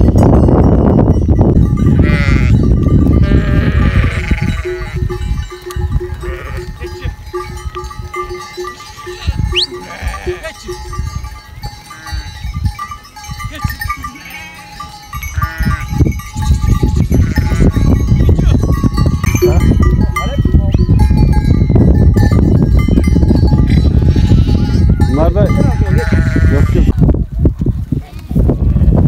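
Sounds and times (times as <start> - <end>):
animal bells clanking: 0.0 - 26.9
sheep and goats bleating: 1.8 - 11.0, 11.8 - 12.4, 13.5 - 16.0, 17.0 - 20.0, 23.6 - 27.0.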